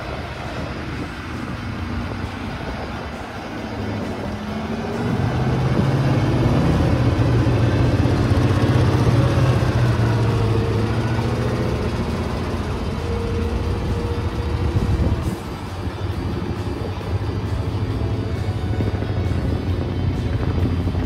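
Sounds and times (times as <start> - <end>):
truck engine running: 0.0 - 21.0.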